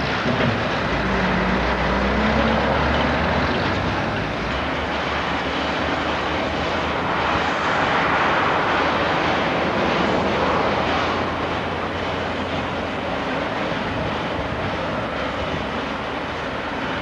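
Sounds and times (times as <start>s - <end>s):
broad rushing noise: 0.0s - 17.0s
diesel lorry engine humming: 0.0s - 17.0s.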